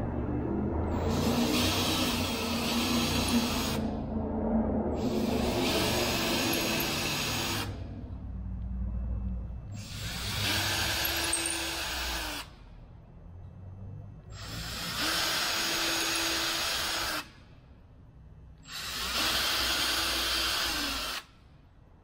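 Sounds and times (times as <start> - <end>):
cordless drill spinning: 1.0 - 3.8, 5.0 - 7.8, 9.8 - 12.5, 14.4 - 17.2, 18.6 - 21.3.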